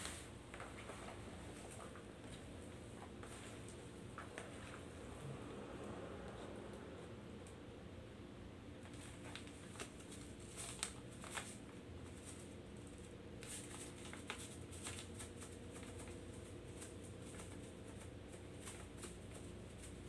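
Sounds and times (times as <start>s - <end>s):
low steady hum: 0.0s - 20.0s
plastic bag crackling: 8.9s - 20.0s.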